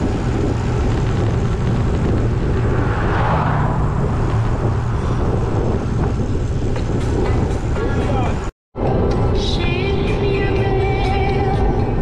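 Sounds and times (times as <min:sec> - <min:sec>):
road noise: 0:00.0 - 0:12.0
wind buffeting microphone: 0:00.0 - 0:12.0.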